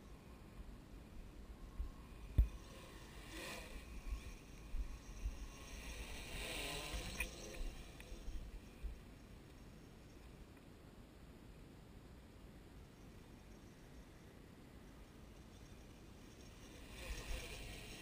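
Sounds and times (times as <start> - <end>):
drone propellers whirring: 1.5 - 9.8, 16.2 - 18.0.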